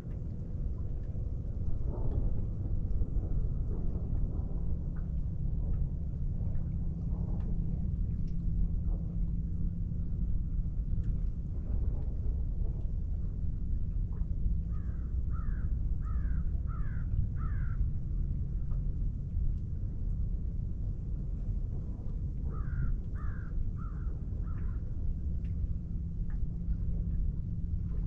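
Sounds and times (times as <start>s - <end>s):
steady low rumble: 0.0s - 28.0s
crow cawing: 14.8s - 17.8s, 22.6s - 24.1s.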